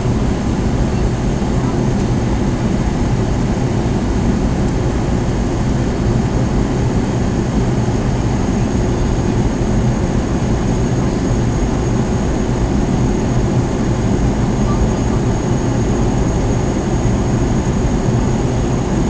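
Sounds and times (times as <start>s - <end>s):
airflow rush in aircraft cabin: 0.0s - 19.0s
jet engines droning: 0.0s - 19.0s.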